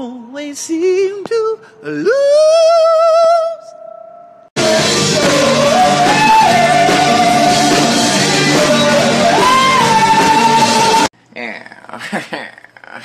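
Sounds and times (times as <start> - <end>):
person singing wordless notes: 4.6 - 11.1
rock band playing: 4.6 - 11.1.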